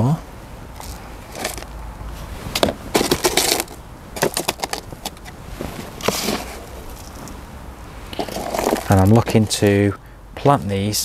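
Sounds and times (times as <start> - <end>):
compost scooped into plastic pots: 0.7 - 7.4, 8.0 - 9.8.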